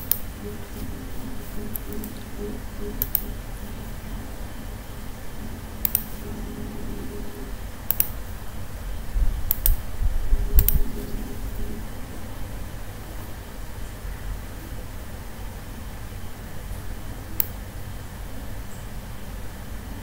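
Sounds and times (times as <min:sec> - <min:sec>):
computer mouse clicking: 0:00.0 - 0:03.8, 0:05.8 - 0:06.3, 0:07.9 - 0:08.2, 0:09.5 - 0:09.8, 0:10.6 - 0:11.3
steady background hum: 0:00.0 - 0:20.0.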